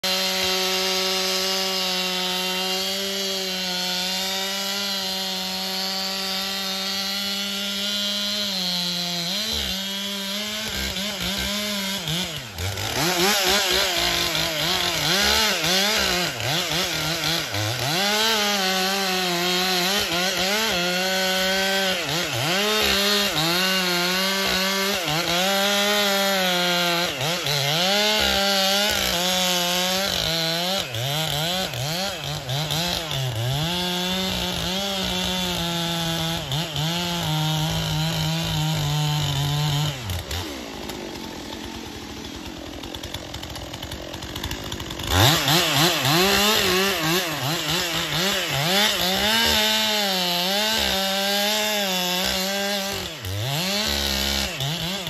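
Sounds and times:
chainsaw cutting wood: 0.0 - 55.0.

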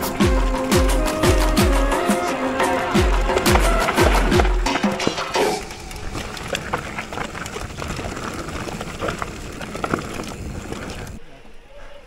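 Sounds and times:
bike rattling and knocking: 0.0 - 11.2
tyre rush on trail: 0.0 - 12.0.

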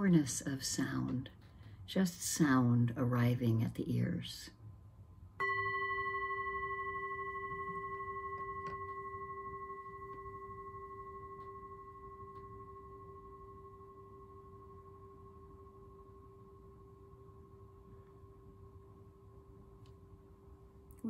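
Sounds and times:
meditation bell ringing: 5.4 - 19.7.

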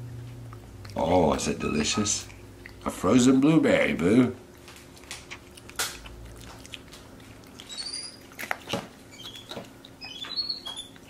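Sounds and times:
monkey squeaking: 1.6 - 2.3, 7.6 - 11.0.

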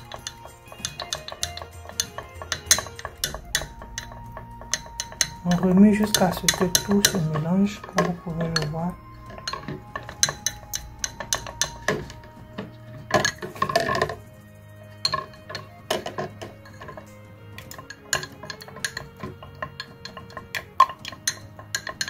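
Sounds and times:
stick clinking against glass: 0.0 - 14.3
soft background music: 0.0 - 22.0.

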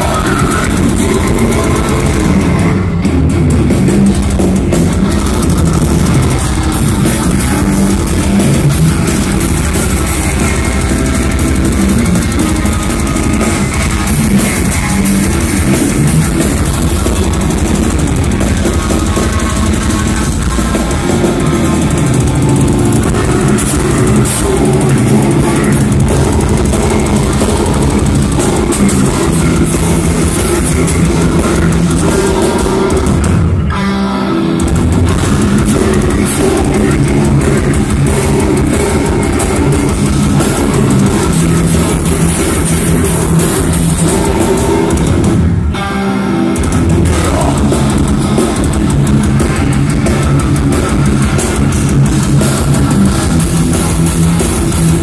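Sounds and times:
bass guitar: 0.0 - 55.0
distorted electric guitars: 0.0 - 55.0
drum kit: 0.0 - 55.0.

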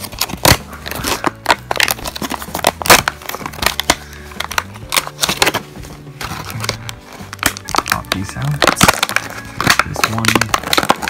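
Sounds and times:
low background music: 0.0 - 11.0
plastic packaging crinkling: 0.0 - 11.0.

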